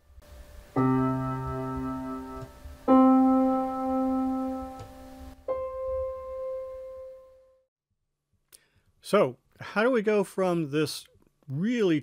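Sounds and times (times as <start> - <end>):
electronic keyboard held notes: 0.0 - 7.6.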